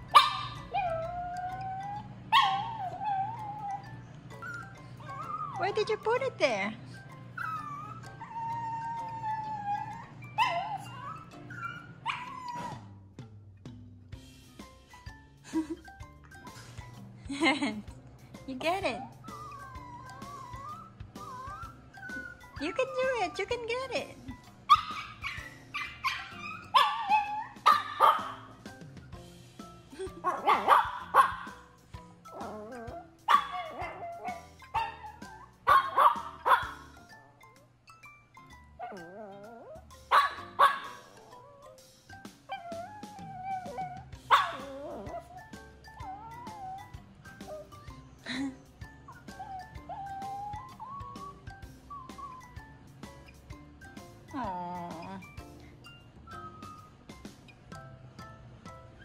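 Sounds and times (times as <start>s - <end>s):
puppy yipping: 0.0s - 6.2s, 7.4s - 13.0s, 18.9s - 23.4s, 24.6s - 28.7s, 30.2s - 41.8s, 42.4s - 48.0s, 49.1s - 53.4s
small dog whining: 0.1s - 6.2s, 6.9s - 13.0s, 19.0s - 23.4s, 24.3s - 28.6s, 32.2s - 53.5s.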